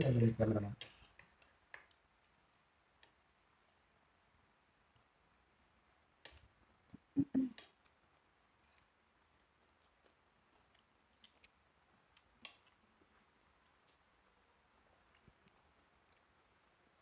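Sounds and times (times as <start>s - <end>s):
chewing mouth sounds: 8.7s - 13.3s.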